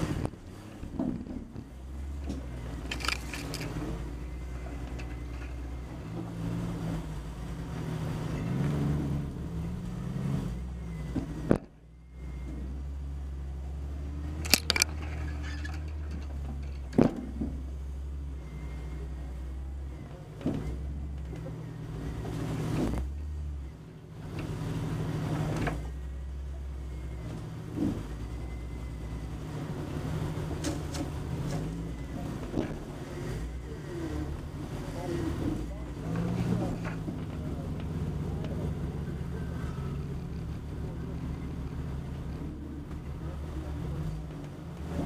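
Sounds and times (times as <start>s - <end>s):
car engine running low: 0.0s - 45.0s
sharp knocks and clunks: 0.2s - 4.0s, 14.4s - 17.8s.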